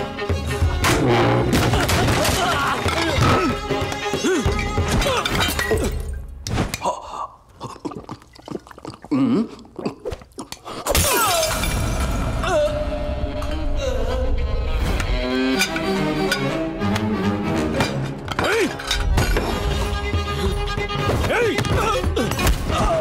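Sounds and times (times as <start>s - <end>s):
dramatic film score: 0.0s - 7.0s, 11.8s - 23.0s
crashes and shattering: 10.9s - 12.5s.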